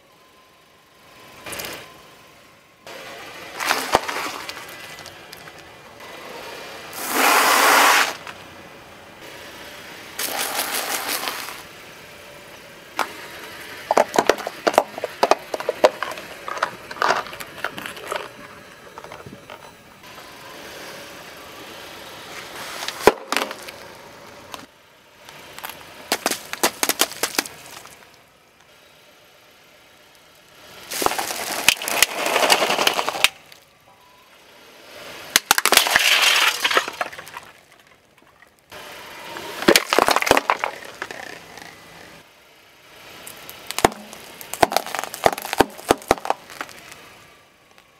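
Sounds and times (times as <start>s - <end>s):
plastic cups crackling: 3.5s - 5.7s, 10.2s - 11.6s, 13.9s - 19.6s, 25.6s - 28.1s, 30.8s - 33.6s, 35.4s - 38.6s, 39.4s - 42.2s, 43.2s - 47.1s
tyre crushing objects: 3.5s - 5.7s, 10.2s - 11.6s, 13.9s - 19.1s, 22.7s - 23.8s, 25.6s - 28.1s, 30.9s - 33.4s, 39.6s - 42.0s, 43.3s - 47.0s
sharp crack: 25.3s - 28.2s, 30.9s - 33.7s, 35.3s - 38.7s, 39.6s - 42.0s, 43.2s - 47.1s
plastic packets popping: 25.6s - 28.0s, 39.6s - 41.8s, 43.3s - 47.0s.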